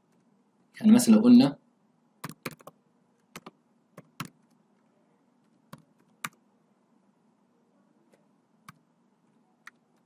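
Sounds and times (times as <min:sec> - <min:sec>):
faint keyboard typing: 0:02.2 - 0:06.4, 0:08.1 - 0:10.0.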